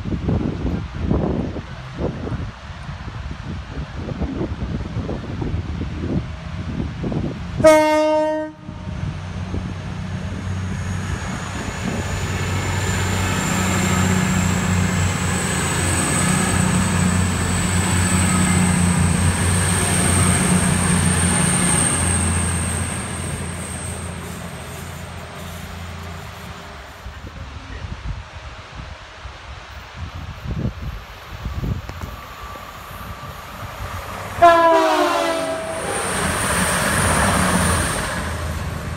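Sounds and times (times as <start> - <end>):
diesel train passing: 0.0 - 38.9
train horn blast: 7.6 - 9.0, 34.4 - 36.2.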